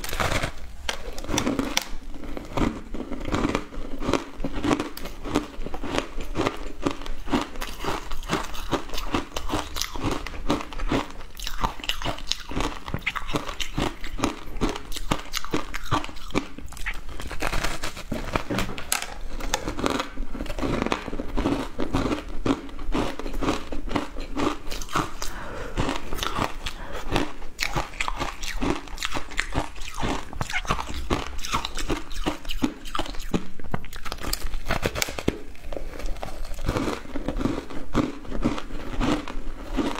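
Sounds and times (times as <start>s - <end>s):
crunching ice chewing: 0.0s - 39.9s.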